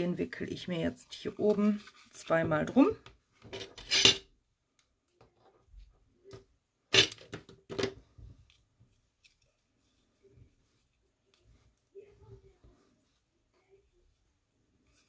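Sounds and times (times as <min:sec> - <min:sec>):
paper and twine rustling: 0:01.1 - 0:02.4.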